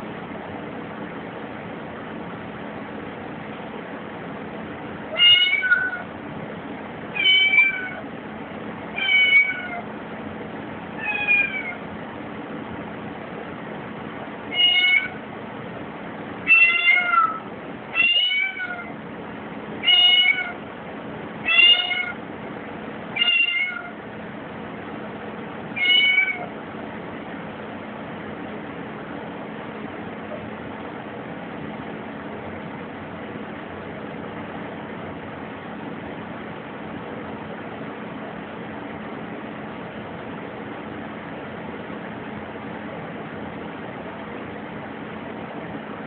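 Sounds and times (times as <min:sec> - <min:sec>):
kitten meowing: 0:05.1 - 0:06.1, 0:07.2 - 0:08.0, 0:09.0 - 0:09.9, 0:11.0 - 0:11.8, 0:14.5 - 0:15.2, 0:16.5 - 0:18.9, 0:19.8 - 0:20.6, 0:21.4 - 0:22.2, 0:23.2 - 0:24.0, 0:25.8 - 0:26.5.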